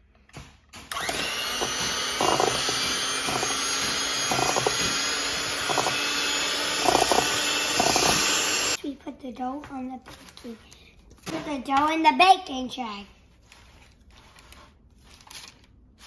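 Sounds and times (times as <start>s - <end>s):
electric hand mixer running: 0.9s - 8.8s.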